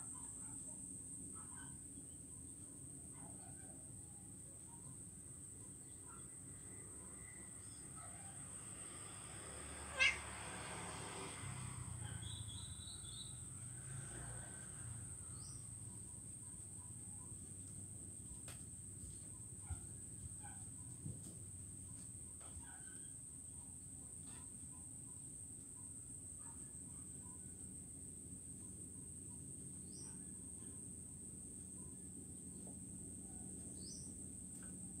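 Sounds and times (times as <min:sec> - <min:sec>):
faint bird chirps: 0:00.0 - 0:08.4, 0:28.5 - 0:35.0
high insect buzz: 0:09.1 - 0:13.4
cat meowing: 0:09.9 - 0:10.4.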